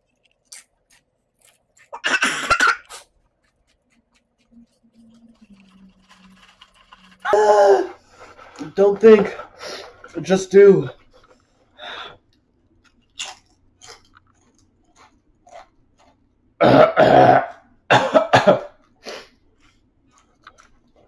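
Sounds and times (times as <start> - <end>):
man coughing hard: 2.0 - 2.8, 16.6 - 18.8.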